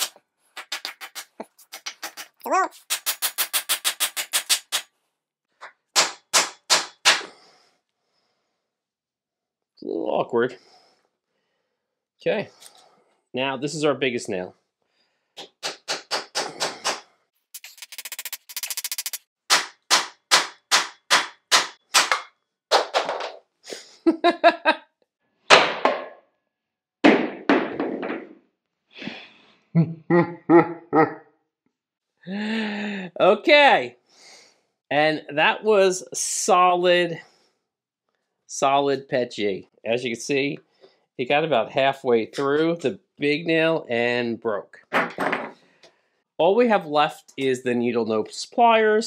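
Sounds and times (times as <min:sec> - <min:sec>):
hammer striking nail into wood: 0:06.0 - 0:07.3, 0:19.5 - 0:22.3.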